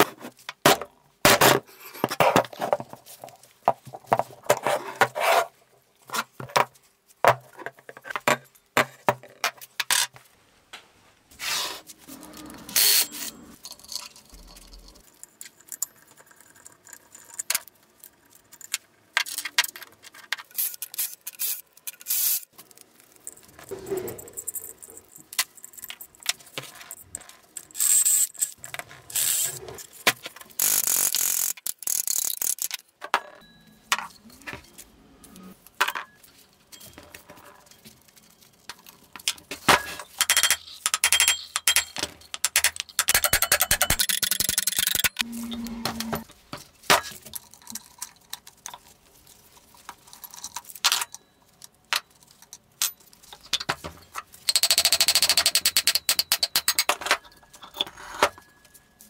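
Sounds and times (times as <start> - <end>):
metal parts clinking and scraping: 12.1 - 32.9, 33.9 - 59.0.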